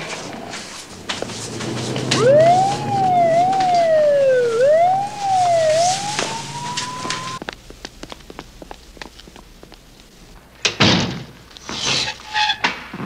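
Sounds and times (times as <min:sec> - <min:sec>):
police siren wailing: 0:00.0 - 0:07.4.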